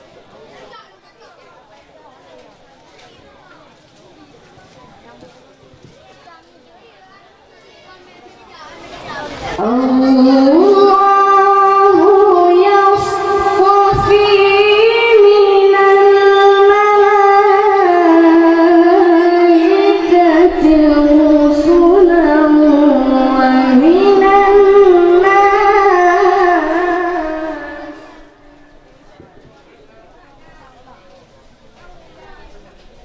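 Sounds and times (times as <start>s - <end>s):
boy reciting melodically: 6.9s - 28.8s.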